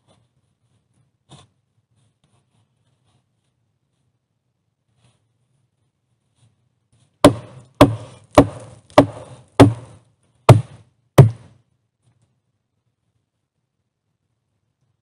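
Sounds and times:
hammer blows on log: 7.2s - 11.5s.

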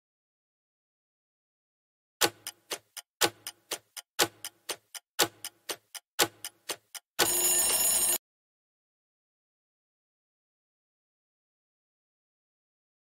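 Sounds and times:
clock ticking: 2.2s - 8.2s
alarm sound: 7.2s - 8.2s.

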